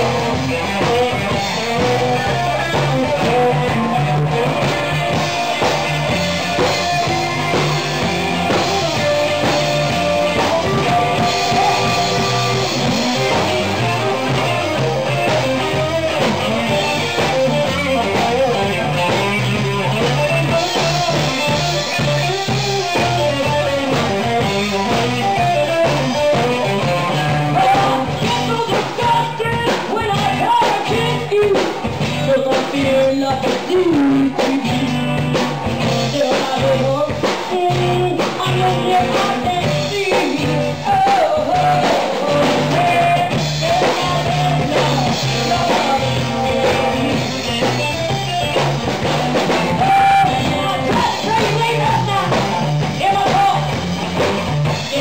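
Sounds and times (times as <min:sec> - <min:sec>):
live blues band playing: 0:00.0 - 0:55.0
woman singing: 0:36.0 - 0:47.2, 0:49.8 - 0:53.7.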